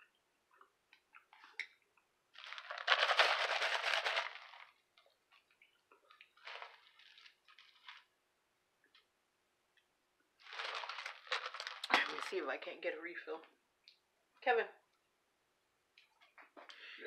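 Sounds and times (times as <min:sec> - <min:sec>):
foam cup crackly rustle: 0:02.3 - 0:08.2, 0:10.4 - 0:12.5.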